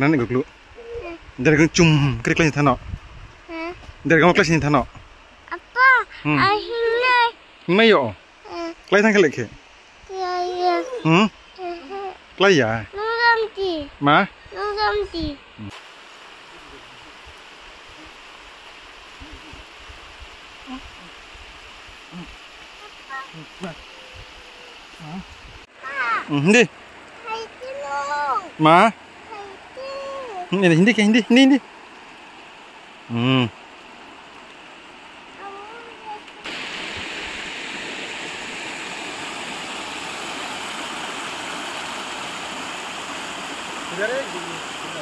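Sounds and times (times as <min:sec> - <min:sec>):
steady outdoor hiss: 0:00.0 - 0:45.0
river rushing over rocks: 0:15.7 - 0:45.0.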